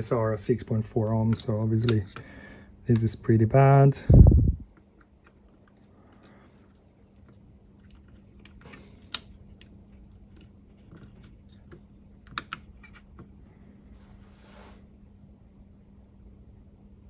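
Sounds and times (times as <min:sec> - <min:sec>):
faint steady hum: 0:00.0 - 0:17.0
small plastic clicks and taps: 0:09.1 - 0:13.3.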